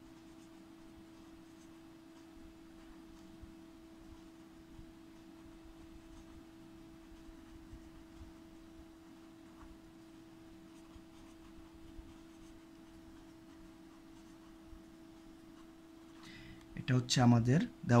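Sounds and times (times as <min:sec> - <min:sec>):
pen scratching on paper: 0:00.0 - 0:16.2
steady faint tone: 0:00.0 - 0:18.0.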